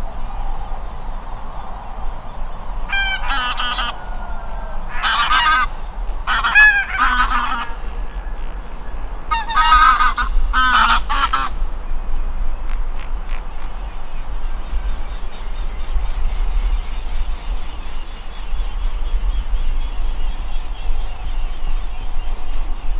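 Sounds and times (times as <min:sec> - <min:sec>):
geese honking: 0:02.2 - 0:11.6.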